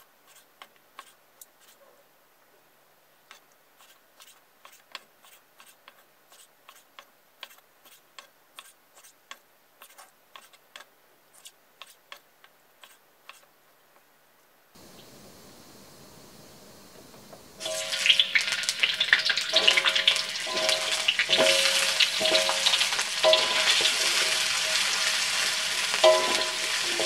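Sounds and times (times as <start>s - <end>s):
wok hissing: 14.8s - 27.0s.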